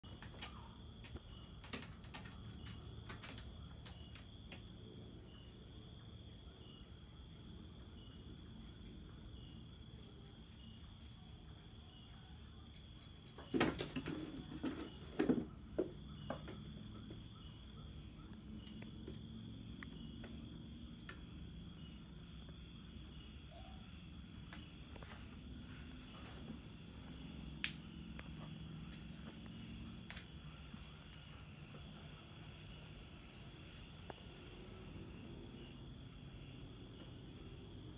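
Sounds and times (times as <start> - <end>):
insects chirring: 0.0 - 37.9
knocks and thumps: 13.4 - 17.4.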